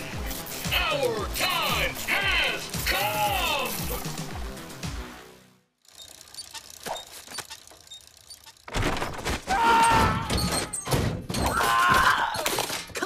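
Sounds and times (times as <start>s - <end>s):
cartoon appliances clattering and thumping: 6.0s - 13.0s
rapid clunks and bangs: 8.7s - 12.0s.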